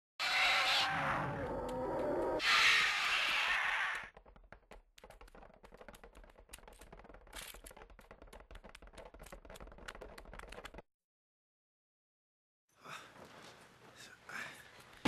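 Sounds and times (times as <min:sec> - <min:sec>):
rapid clicking and ticking: 0:04.1 - 0:10.8.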